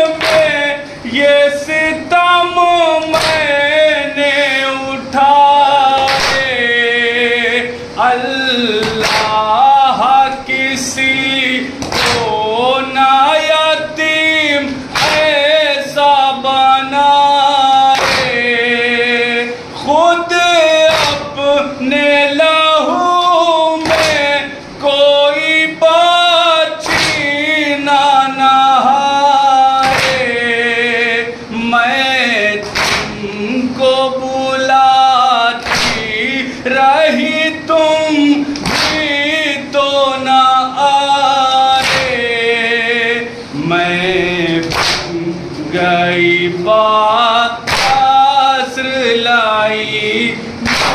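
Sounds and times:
men chanting a lament: 0:00.0 - 0:50.9
hands beating chests: 0:03.1 - 0:03.5, 0:06.0 - 0:06.5, 0:08.8 - 0:09.4, 0:11.8 - 0:12.4, 0:15.0 - 0:15.4, 0:17.9 - 0:18.4, 0:20.9 - 0:21.3, 0:23.8 - 0:24.3, 0:26.8 - 0:27.3, 0:29.8 - 0:30.3, 0:32.6 - 0:33.2, 0:35.6 - 0:36.1, 0:38.6 - 0:39.2, 0:41.8 - 0:42.2, 0:44.7 - 0:45.2, 0:47.7 - 0:48.1, 0:50.6 - 0:50.9.

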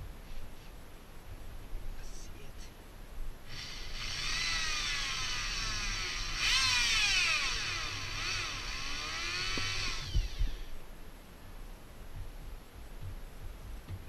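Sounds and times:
electric drill whining: 0:03.5 - 0:10.8
low thumps: 0:04.0 - 0:10.8.

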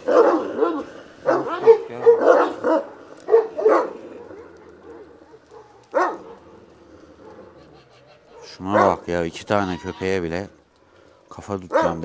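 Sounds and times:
dog barking: 0:00.0 - 0:07.6, 0:08.2 - 0:09.1, 0:11.6 - 0:12.0.

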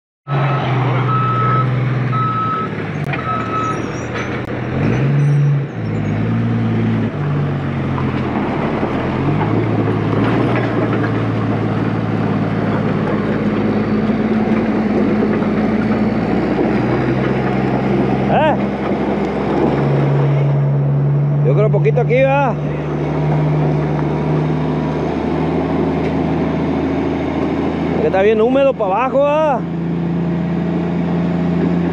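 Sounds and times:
diesel engine running: 0:00.3 - 0:31.9
backup alarm beeping: 0:01.1 - 0:03.9.

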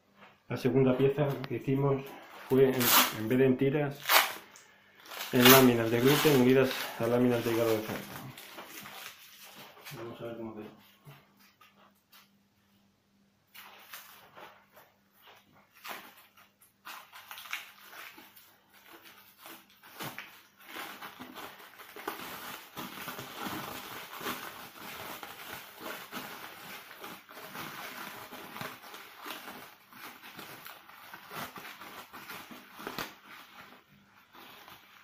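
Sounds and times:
cling film crinkling: 0:04.0 - 0:10.3, 0:13.5 - 0:35.0.

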